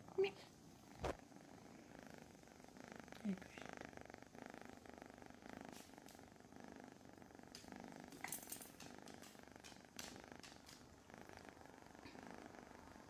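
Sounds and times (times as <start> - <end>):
kitten purring: 0.0 - 13.0.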